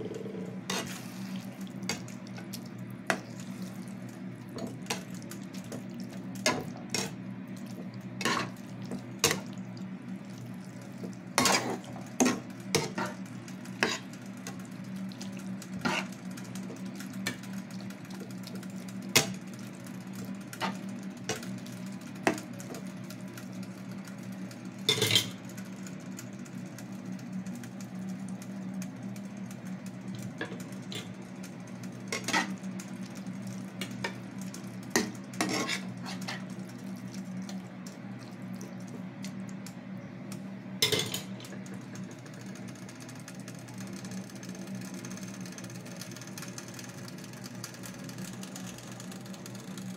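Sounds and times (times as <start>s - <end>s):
steady low hum: 0.0s - 49.9s
metal spatula scraping a pan: 35.4s - 36.4s.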